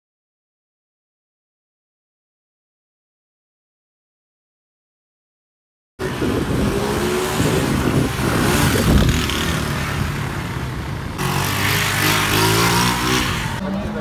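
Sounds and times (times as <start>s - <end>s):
motorcycle engine revving: 6.0s - 14.0s.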